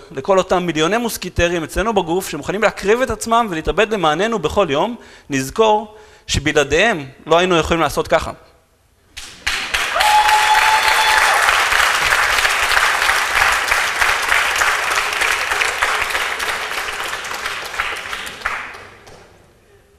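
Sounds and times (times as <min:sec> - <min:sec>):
audience applauding: 0:09.2 - 0:19.2.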